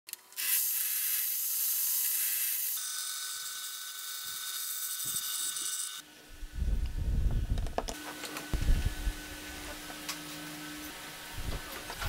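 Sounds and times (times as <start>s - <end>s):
table saw cutting wood: 0.4s - 6.1s.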